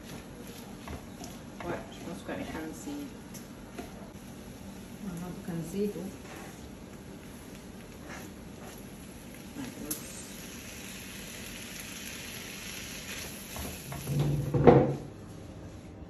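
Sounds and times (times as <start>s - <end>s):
wooden spatula stirring: 0.0s - 2.6s, 5.8s - 9.7s
stuffing sizzling in a pan: 4.2s - 14.5s.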